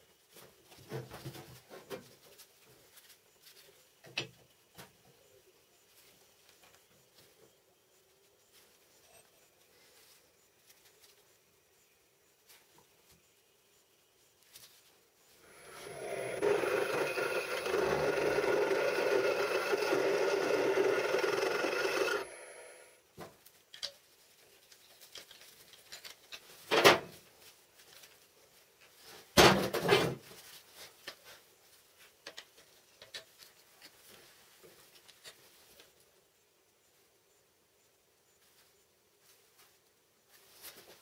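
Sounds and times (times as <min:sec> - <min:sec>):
power tool grinding steel: 0:15.5 - 0:22.9.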